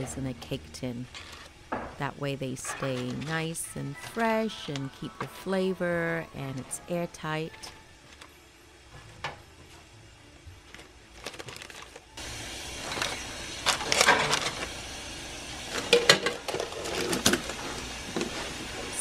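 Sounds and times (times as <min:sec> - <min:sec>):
parchment paper crinkling: 0:10.6 - 0:12.1.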